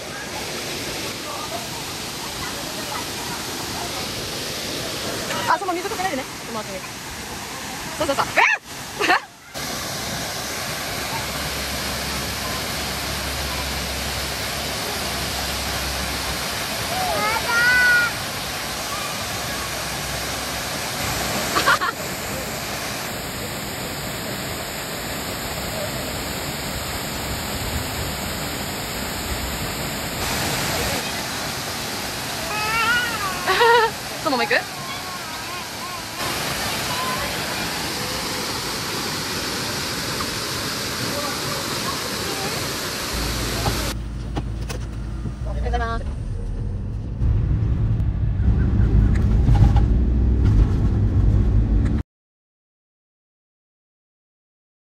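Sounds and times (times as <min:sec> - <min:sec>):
waterfall rushing: 0:00.0 - 0:44.0
engine and road noise in cabin: 0:43.2 - 0:52.0.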